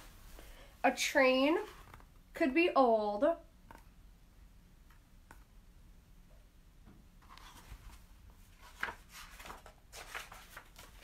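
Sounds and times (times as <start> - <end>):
paper pages turning: 7.2 - 11.0.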